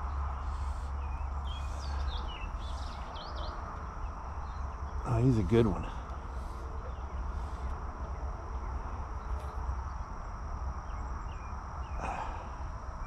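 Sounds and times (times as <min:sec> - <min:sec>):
high insect drone: 0:00.0 - 0:13.0
bird chirps: 0:00.5 - 0:10.1.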